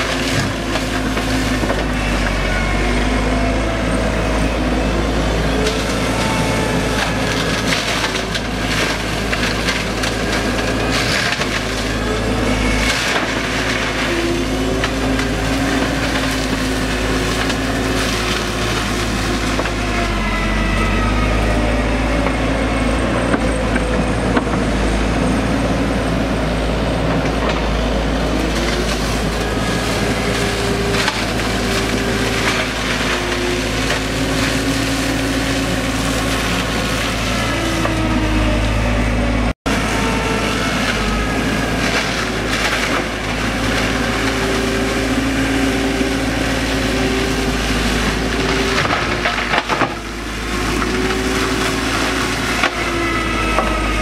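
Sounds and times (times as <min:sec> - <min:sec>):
excavator engine drone: 0:00.0 - 0:54.0
mulcher shredding brush: 0:00.0 - 0:54.0.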